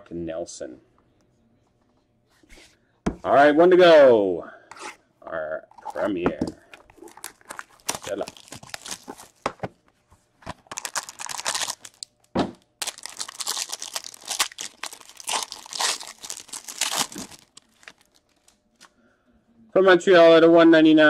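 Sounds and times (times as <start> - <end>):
plastic wrap crinkling: 6.8 - 9.5, 10.5 - 18.9
foil pack crinkling and tearing: 6.9 - 9.4, 10.6 - 12.2, 12.8 - 18.6.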